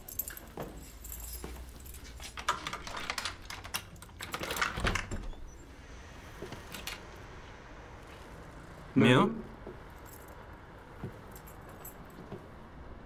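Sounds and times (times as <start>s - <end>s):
keys rattling: 0.0s - 5.6s, 9.9s - 10.6s, 11.2s - 12.3s
key clicking in a lock: 2.2s - 5.3s.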